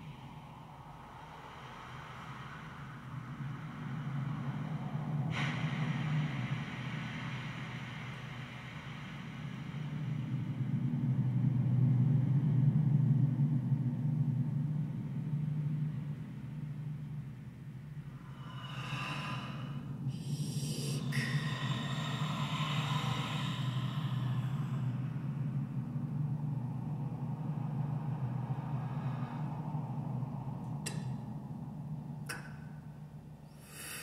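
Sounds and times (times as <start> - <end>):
breath-like hissing and sighing: 1.0 - 10.7, 18.1 - 25.8, 33.5 - 34.0.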